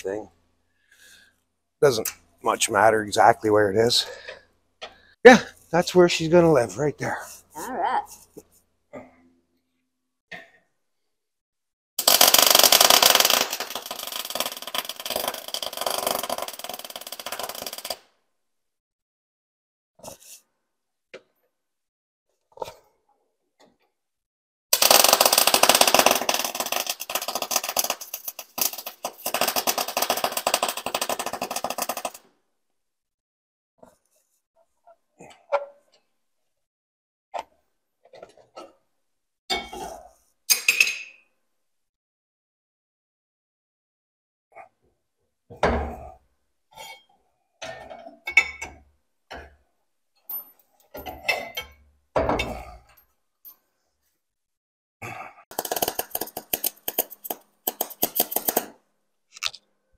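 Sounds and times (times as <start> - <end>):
arc welding crackling: 12.0 - 17.9, 24.8 - 32.2, 55.5 - 58.7.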